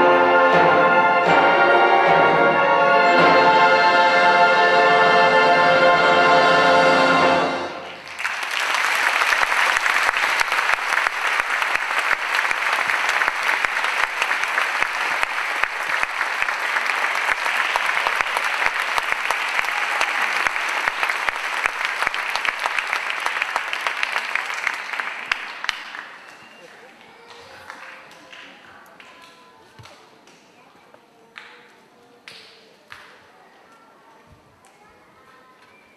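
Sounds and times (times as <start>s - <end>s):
choir and orchestra chord: 0.0s - 8.0s
audience applauding: 7.8s - 29.4s.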